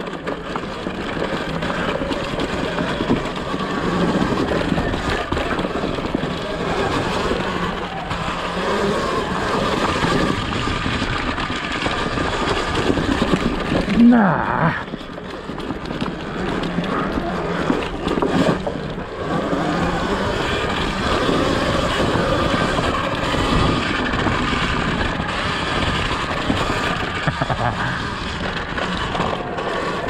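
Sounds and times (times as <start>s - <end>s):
dirt bike tyre and chain noise: 0.0s - 30.0s.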